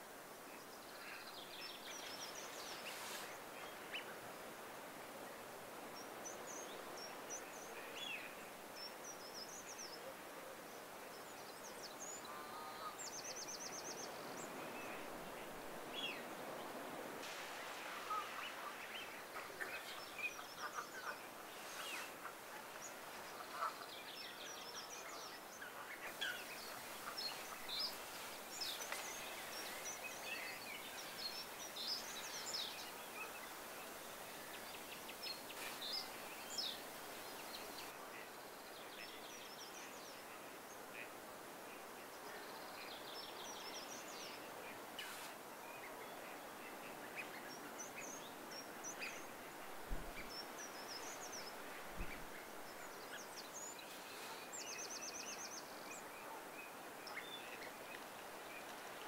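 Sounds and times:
outdoor background hiss: 0:00.0 - 0:59.0
birds chirping and trilling: 0:17.6 - 0:37.9.

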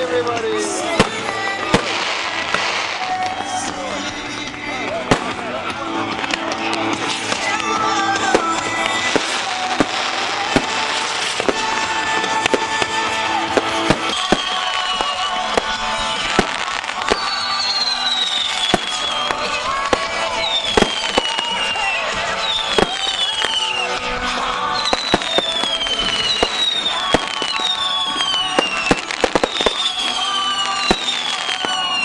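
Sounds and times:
firework bangs and crackles: 0:00.0 - 0:32.0
high falling whistles: 0:14.0 - 0:16.3, 0:17.1 - 0:19.6, 0:20.2 - 0:24.0, 0:24.7 - 0:32.0.

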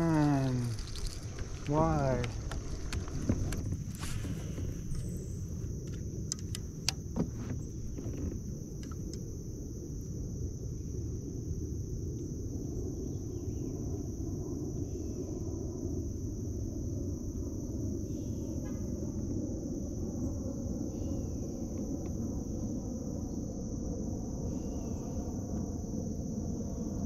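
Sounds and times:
low rumble: 0:00.0 - 0:17.1
insects droning: 0:00.0 - 0:27.0.

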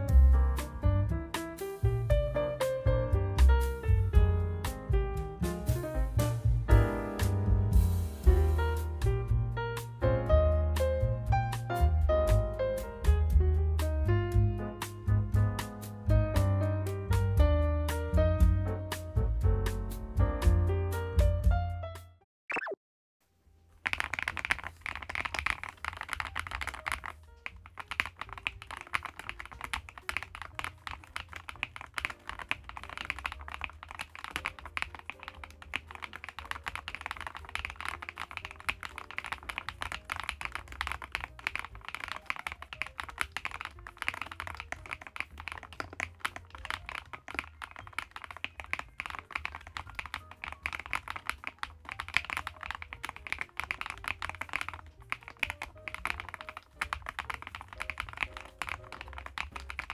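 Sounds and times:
mechanical keyboard typing: 0:23.8 - 0:59.9.

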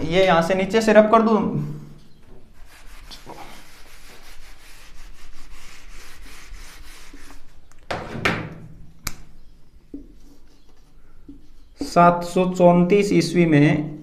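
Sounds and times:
eraser rubbing whiteboard: 0:02.6 - 0:07.6.

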